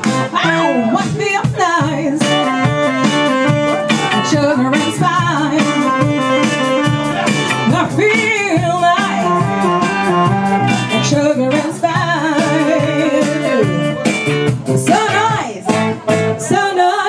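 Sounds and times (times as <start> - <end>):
saxophone: 0.0 - 16.4
live rock band playing: 0.0 - 16.9
woman singing: 0.2 - 3.4, 4.1 - 7.0, 7.6 - 14.1, 14.8 - 17.0.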